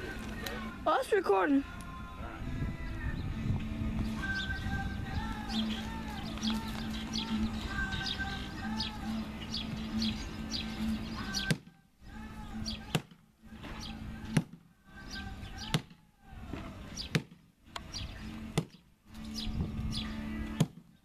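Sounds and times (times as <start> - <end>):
birds chirping: 0.0 - 21.0
axe chopping tree trunk: 11.4 - 11.7, 12.9 - 13.2, 14.3 - 14.6, 15.6 - 16.0, 17.0 - 17.5, 18.5 - 18.8, 20.6 - 20.9.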